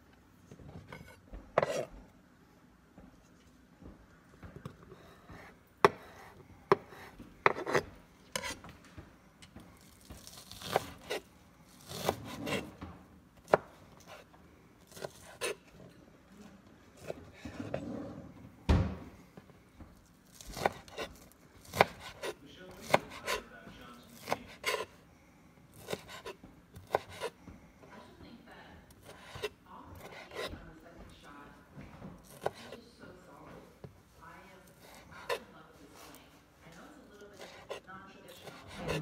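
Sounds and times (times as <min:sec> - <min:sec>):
knife chopping on cutting board: 0:00.7 - 0:01.9, 0:04.7 - 0:08.7, 0:09.8 - 0:14.3, 0:14.9 - 0:15.7, 0:20.3 - 0:25.0, 0:25.7 - 0:27.4, 0:28.9 - 0:30.7, 0:32.2 - 0:32.8, 0:34.8 - 0:35.5, 0:37.4 - 0:39.0
knife rubbing on board: 0:05.0 - 0:08.6, 0:24.2 - 0:24.9.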